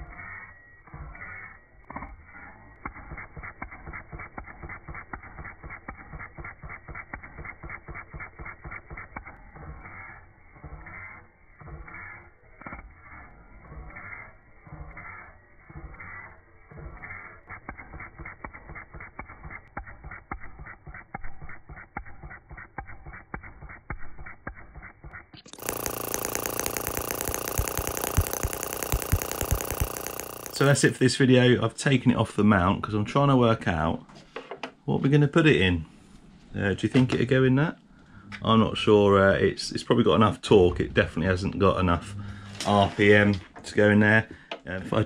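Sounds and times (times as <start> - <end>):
small petrol engine idling: 25.5 - 30.8.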